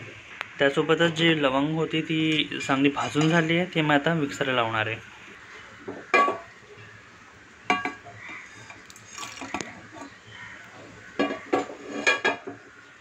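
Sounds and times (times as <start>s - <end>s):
frying pan clattering on metal jar: 5.9s - 6.5s, 7.7s - 8.2s, 11.2s - 12.6s.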